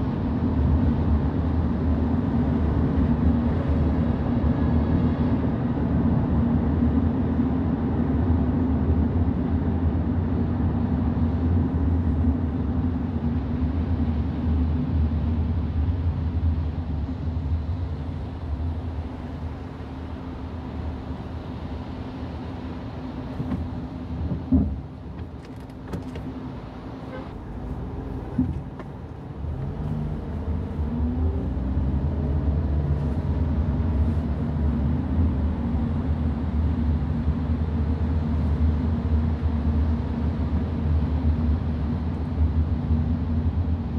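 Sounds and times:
car engine and tyres rumbling: 0:00.0 - 0:43.9.

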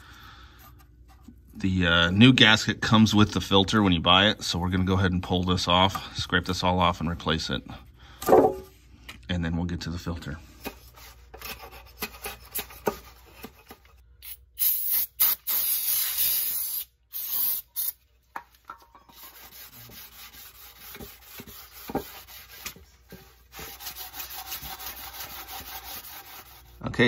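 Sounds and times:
sandpaper rubbing: 0:19.2 - 0:22.8, 0:23.5 - 0:26.8.

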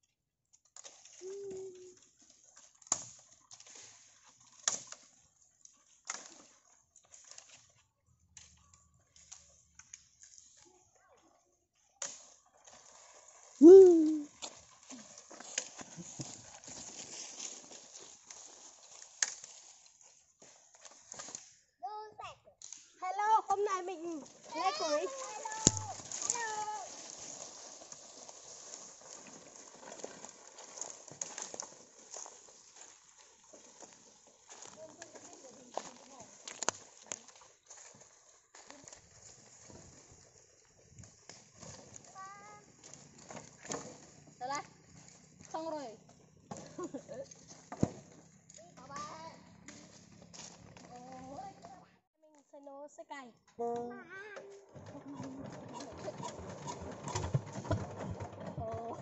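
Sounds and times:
dry leaves and twigs crackling: 0:00.8 - 0:07.8, 0:12.0 - 0:21.6, 0:22.6 - 0:51.8.

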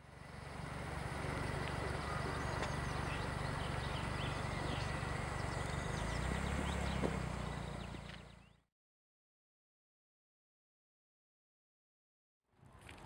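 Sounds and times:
birds chirping: 0:00.0 - 0:08.7.

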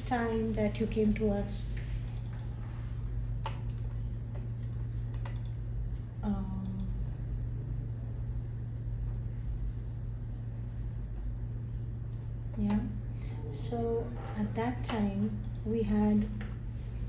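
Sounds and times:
low steady hum: 0:00.0 - 0:17.0
keyboard and mouse clicks: 0:02.0 - 0:02.6, 0:03.4 - 0:05.6, 0:14.2 - 0:16.5.

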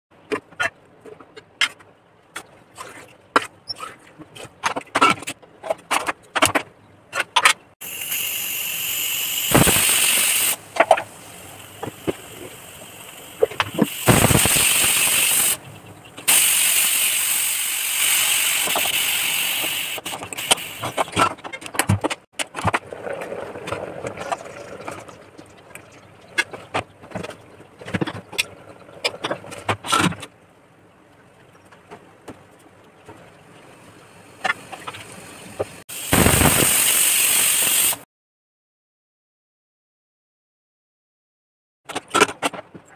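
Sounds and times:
pressure cooker whistling: 0:07.8 - 0:10.6, 0:13.1 - 0:15.6, 0:16.3 - 0:20.9, 0:35.9 - 0:38.0.

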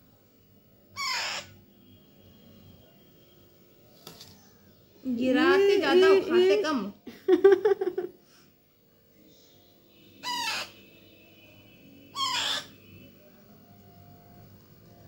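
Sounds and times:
parrot chick begging calls: 0:01.0 - 0:01.6, 0:10.2 - 0:10.9, 0:12.0 - 0:12.8.

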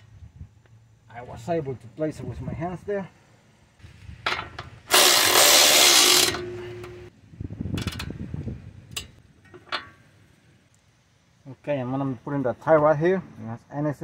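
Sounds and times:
tool clicking and rattling: 0:04.3 - 0:07.0
power wrench running: 0:04.9 - 0:07.0.

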